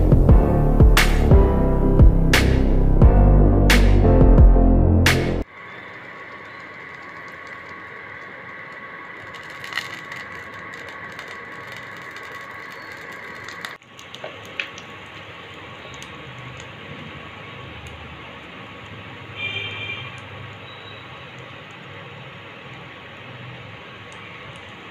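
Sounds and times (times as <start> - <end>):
oil hissing in pan: 5.5 - 19.3.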